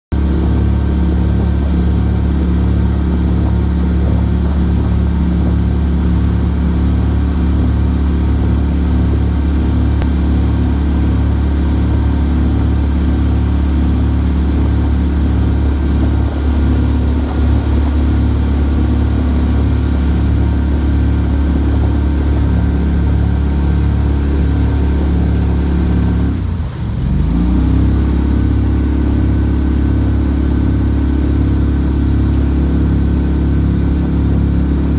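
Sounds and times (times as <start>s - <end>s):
boat motor running: 0.1s - 34.9s.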